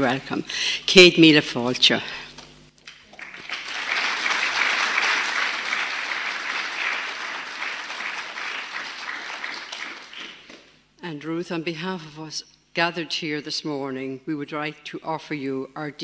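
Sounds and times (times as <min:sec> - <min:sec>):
audience applauding: 0:02.9 - 0:10.7.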